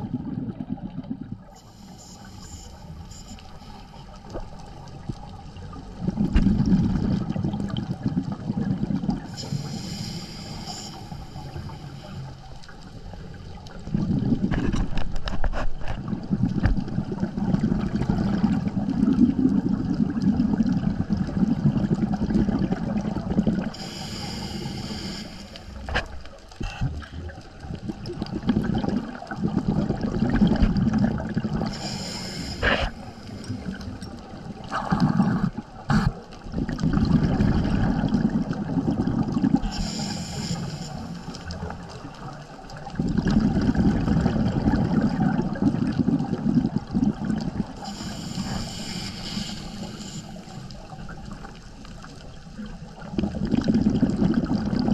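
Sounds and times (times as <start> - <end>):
exhaled bubbles rumbling: 0.0 - 54.9
regulator inhalation hiss: 1.6 - 4.2, 9.3 - 12.6, 23.7 - 25.8, 31.6 - 33.8, 39.6 - 41.7, 47.8 - 50.8.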